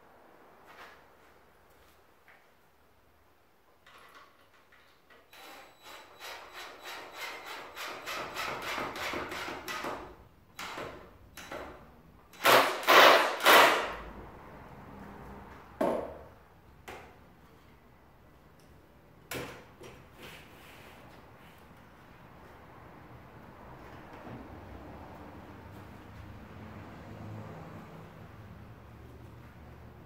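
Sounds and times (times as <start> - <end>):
cordless drill driving screw: 12.4 - 13.9.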